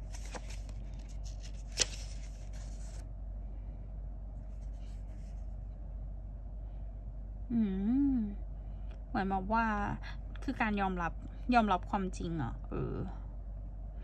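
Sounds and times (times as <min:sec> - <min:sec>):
paper book rustling: 0:00.0 - 0:03.0, 0:04.5 - 0:05.5
steady low hum: 0:00.0 - 0:14.0.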